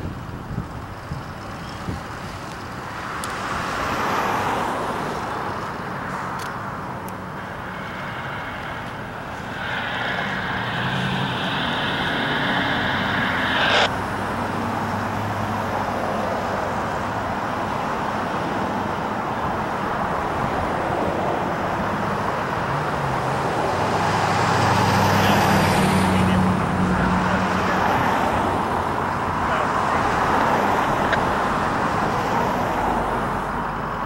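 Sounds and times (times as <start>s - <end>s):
diesel locomotive engine running: 0.0s - 15.8s.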